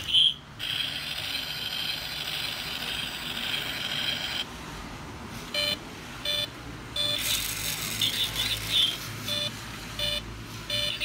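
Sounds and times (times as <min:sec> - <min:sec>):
toy car mechanical whirring: 0:00.0 - 0:04.5, 0:07.0 - 0:09.5.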